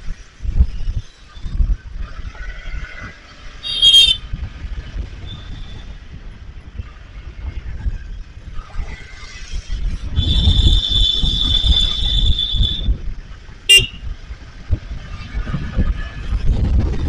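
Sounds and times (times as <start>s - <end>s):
wind rumble on microphone: 0.0s - 17.0s
vehicle horn beep: 3.6s - 4.2s, 13.7s - 14.0s.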